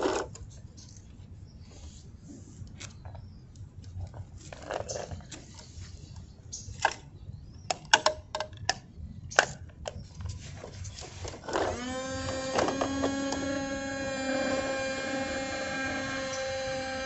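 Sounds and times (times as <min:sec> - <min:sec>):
plastic toys clicking and knocking: 0:07.7 - 0:08.8
toy motor whirring: 0:11.4 - 0:17.0.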